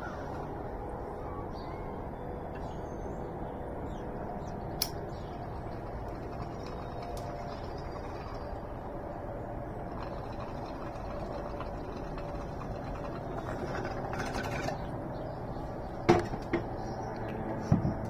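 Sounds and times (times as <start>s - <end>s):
faint tonal sounds: 0.0s - 18.0s
low outdoor background noise: 0.0s - 18.0s
sharp click: 4.8s - 5.0s.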